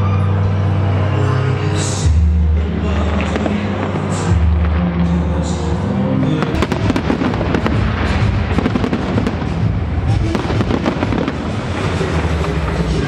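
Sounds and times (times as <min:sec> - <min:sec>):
fireworks bangs and crackling: 0:03.0 - 0:13.0.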